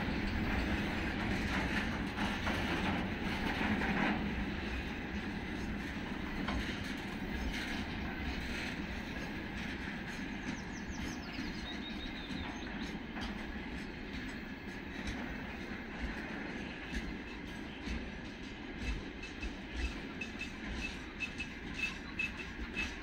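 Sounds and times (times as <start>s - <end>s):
steel wheels rumbling on rail: 0.0s - 23.0s.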